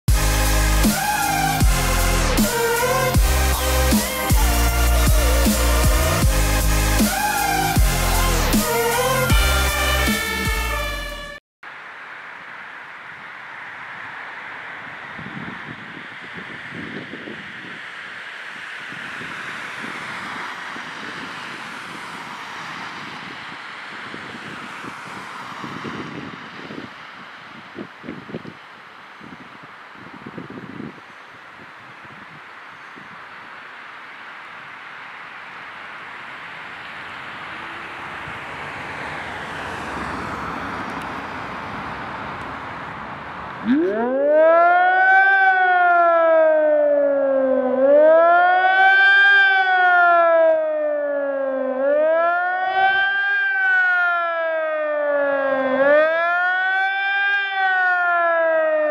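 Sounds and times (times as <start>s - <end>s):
warning siren wailing: 0.1s - 11.4s, 43.6s - 58.9s.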